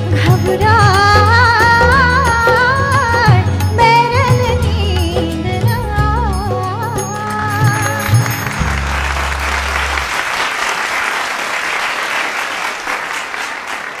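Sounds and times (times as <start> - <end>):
live song with held note: 0.0 - 14.0
audience applause: 8.1 - 14.0.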